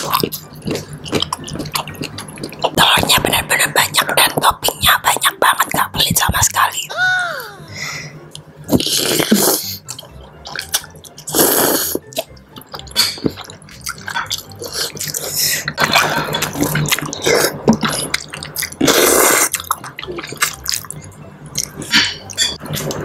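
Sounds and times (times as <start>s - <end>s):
chewing: 0.0s - 2.8s, 8.4s - 23.0s
wet noodle slurps: 8.7s - 12.3s, 14.6s - 19.7s.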